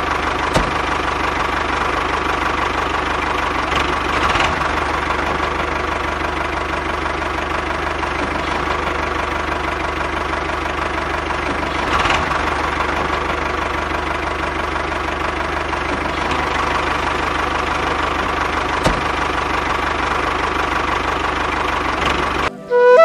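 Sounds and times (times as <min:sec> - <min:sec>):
engine running with knocking beat: 0:00.0 - 0:22.5.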